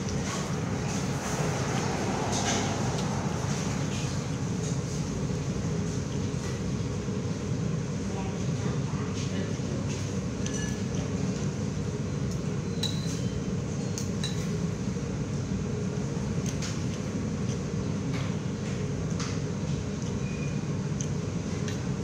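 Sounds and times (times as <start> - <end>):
low background hum: 0.0 - 22.0
cutlery clinking on plate: 10.4 - 11.0.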